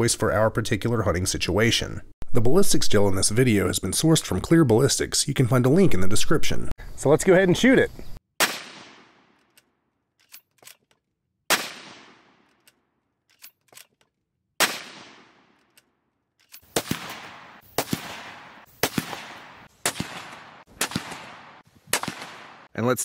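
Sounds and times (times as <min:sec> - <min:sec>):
rifle shots echoing: 0:08.4 - 0:09.4, 0:11.5 - 0:12.5, 0:14.6 - 0:15.6, 0:16.6 - 0:22.7
rifle bolt clicks: 0:09.4 - 0:11.1, 0:12.4 - 0:14.2, 0:15.4 - 0:16.7.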